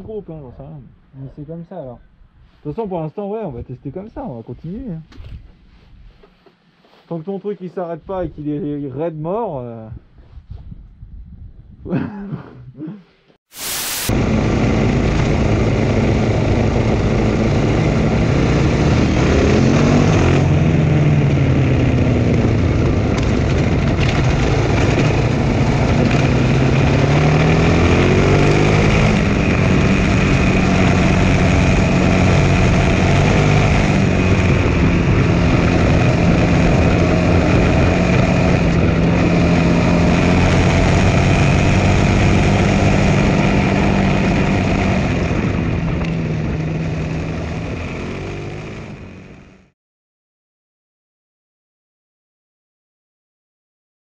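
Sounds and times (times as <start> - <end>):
road and wind noise: 3.6 - 6.6, 9.9 - 11.9, 13.6 - 49.7
motorcycle engine revving: 13.9 - 49.7.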